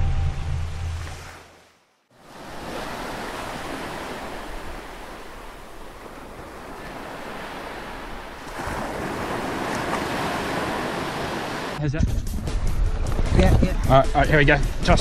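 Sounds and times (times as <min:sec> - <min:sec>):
ocean waves and surf: 0:00.0 - 0:11.8.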